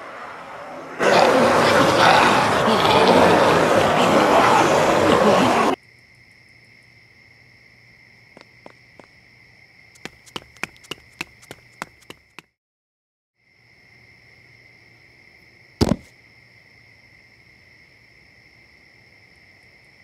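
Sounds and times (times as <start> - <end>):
crickets chirping: 5.8 - 12.4, 13.4 - 20.0
footsteps on pavement: 8.3 - 9.2, 9.9 - 12.6.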